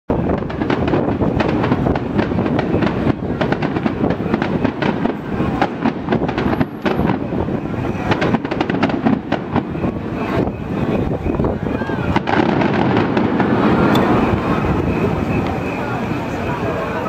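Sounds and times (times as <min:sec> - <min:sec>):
fireworks bangs and crackles: 0:00.1 - 0:17.0.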